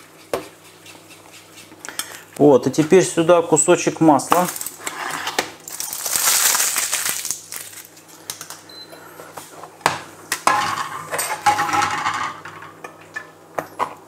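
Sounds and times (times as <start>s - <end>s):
knife cutting and scraping butter: 0.1s - 2.0s.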